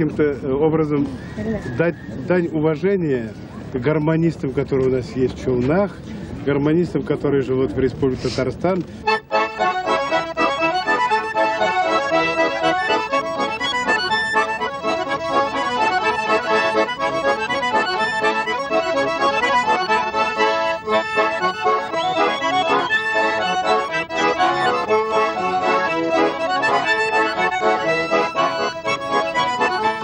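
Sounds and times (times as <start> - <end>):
button accordions playing folk music: 7.2 - 30.0.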